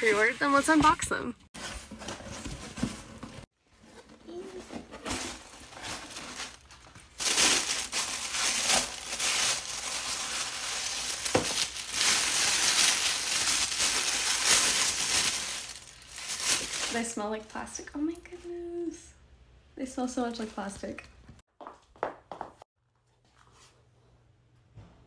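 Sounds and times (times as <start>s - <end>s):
cardboard box rustling: 1.6s - 16.9s
tissue paper and plastic crinkling: 4.3s - 17.6s.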